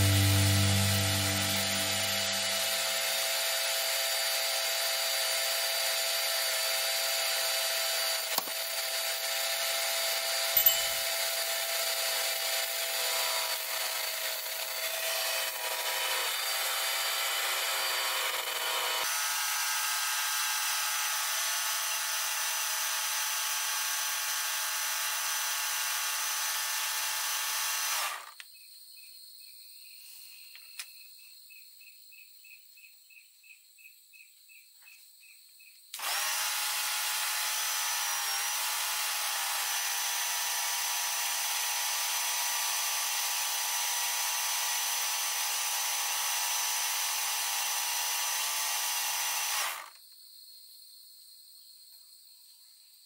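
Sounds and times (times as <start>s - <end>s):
pressure washer whining: 0.0s - 3.2s.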